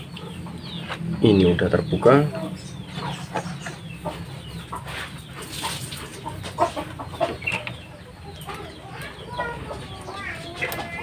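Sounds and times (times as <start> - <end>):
fowl clucking: 2.1 - 11.0.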